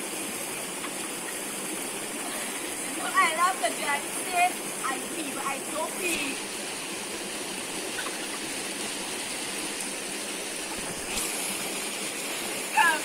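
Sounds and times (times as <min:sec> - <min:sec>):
river water flowing: 0:00.0 - 0:13.0.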